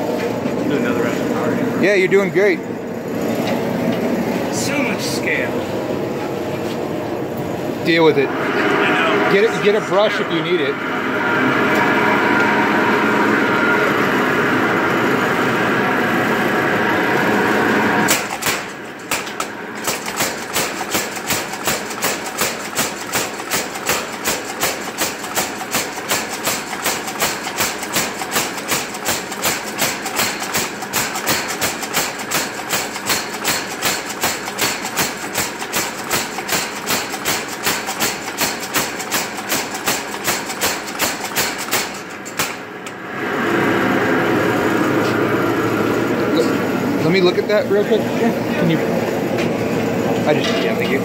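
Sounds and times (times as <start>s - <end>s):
power hammer striking hot steel: 18.1s - 43.0s.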